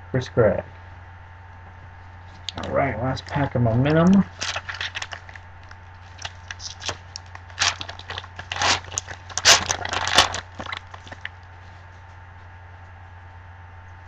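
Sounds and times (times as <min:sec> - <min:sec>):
foil wrapper tearing and crinkling: 0:02.5 - 0:11.3.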